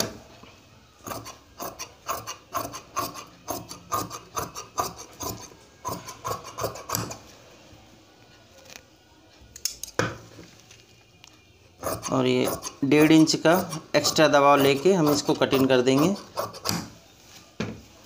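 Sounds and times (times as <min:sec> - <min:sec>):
shears snipping fabric: 0:01.1 - 0:07.2.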